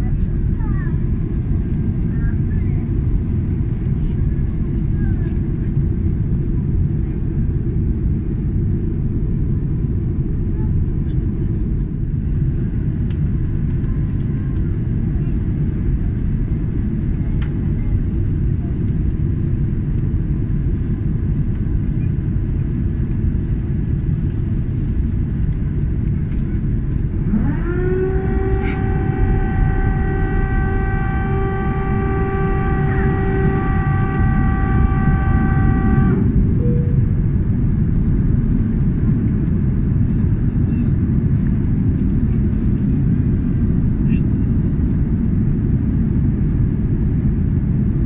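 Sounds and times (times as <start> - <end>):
airliner engine and airflow roar: 0.0 - 48.0
rising whine: 26.9 - 39.3.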